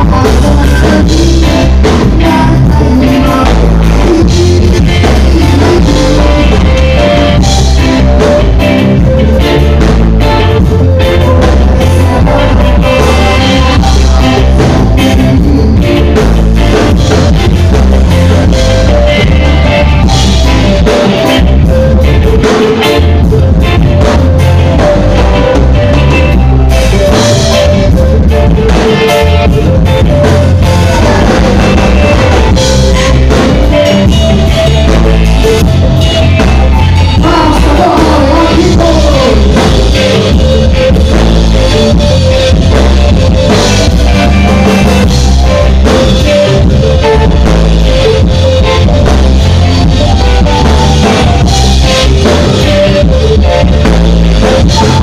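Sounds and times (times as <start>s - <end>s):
man singing into a microphone: 0.0s - 8.3s, 10.6s - 16.4s, 30.6s - 32.6s, 37.2s - 40.3s
live band playing: 0.0s - 55.0s.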